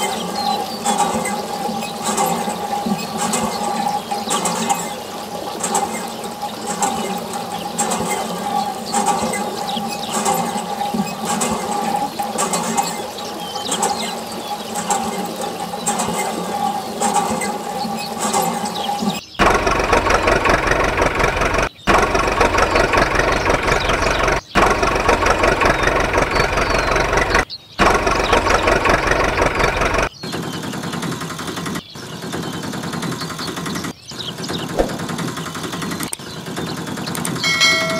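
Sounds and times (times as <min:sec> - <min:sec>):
deep engine running: 0:18.9 - 0:30.1.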